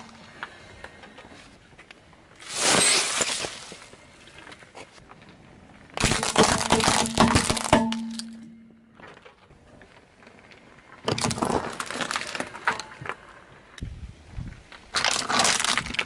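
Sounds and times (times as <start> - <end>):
plastic toys cracking: 6.0 - 8.4, 11.0 - 13.2, 14.9 - 16.0
vegetables crunching under tyre: 6.0 - 8.4, 15.0 - 16.0
tyre rolling on asphalt: 8.9 - 13.7.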